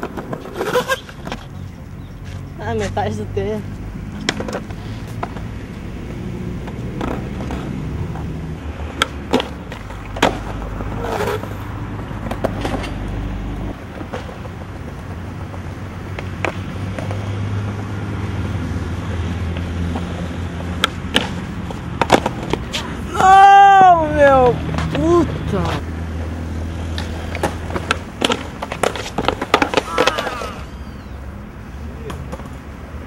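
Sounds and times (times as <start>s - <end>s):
skateboard clacking: 0.0s - 1.6s, 4.2s - 5.5s, 6.1s - 8.3s, 8.9s - 11.6s, 12.2s - 17.3s, 19.5s - 25.6s, 26.2s - 31.2s, 31.9s - 32.8s
skateboard wheels rolling on concrete: 0.0s - 33.0s.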